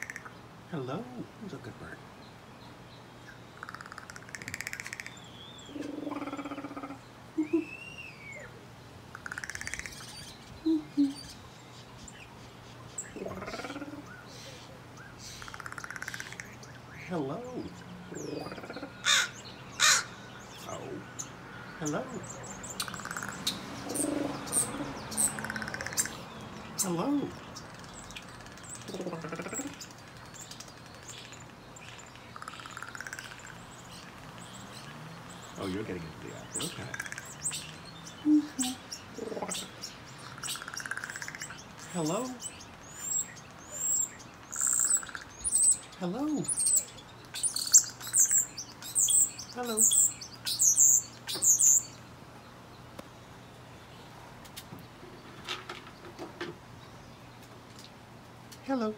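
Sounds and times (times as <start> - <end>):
crow calling: 0.0 - 0.4, 3.5 - 7.0, 7.6 - 11.4, 13.0 - 52.0
small birds chirping: 0.0 - 58.9.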